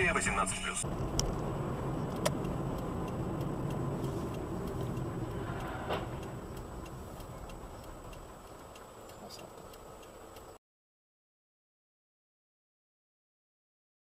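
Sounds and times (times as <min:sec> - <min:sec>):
car road and engine rumble: 0:00.0 - 0:10.6
faint regular ticking: 0:00.8 - 0:10.6.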